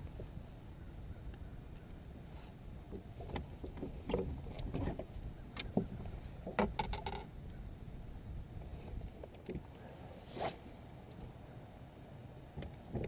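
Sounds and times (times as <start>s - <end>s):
knocks and clicks of fishing rod: 2.9s - 7.3s.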